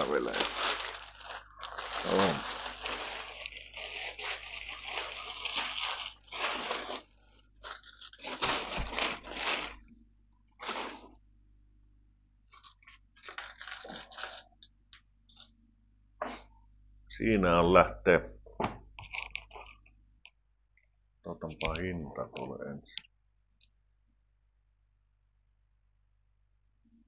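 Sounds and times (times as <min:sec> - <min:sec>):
plastic bag crinkling: 0:00.0 - 0:11.2, 0:12.5 - 0:14.7, 0:19.0 - 0:19.9.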